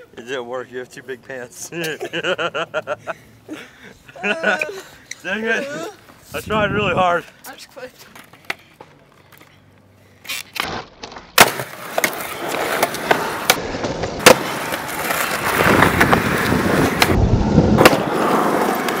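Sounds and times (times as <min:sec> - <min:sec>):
skateboard wheels rolling on concrete: 0:04.2 - 0:19.0
skateboard popping and landing: 0:10.3 - 0:19.0.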